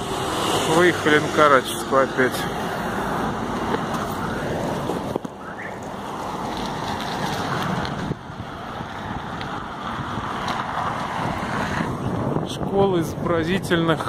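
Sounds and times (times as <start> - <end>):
road and traffic noise: 0.0 - 14.0
wind buffeting microphone: 2.5 - 14.0.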